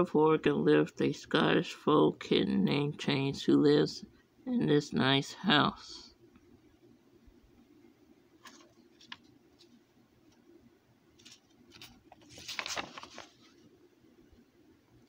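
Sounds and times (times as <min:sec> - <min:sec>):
paper page rustling: 0:08.4 - 0:10.4, 0:11.2 - 0:13.7.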